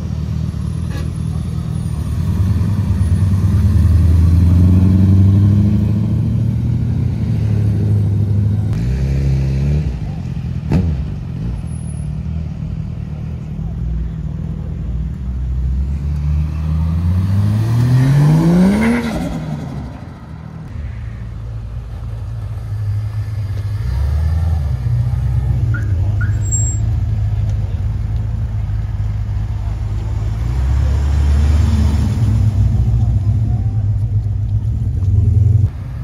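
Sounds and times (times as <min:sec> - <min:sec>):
car engine revving: 0:15.5 - 0:20.7.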